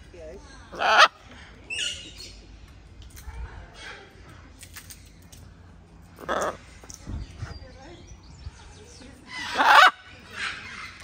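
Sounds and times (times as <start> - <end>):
macaw squawking: 9.4 - 11.0.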